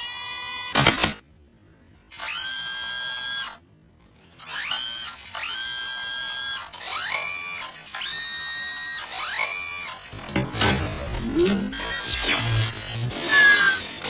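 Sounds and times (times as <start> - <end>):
hydraulic whine: 4.4 - 14.0.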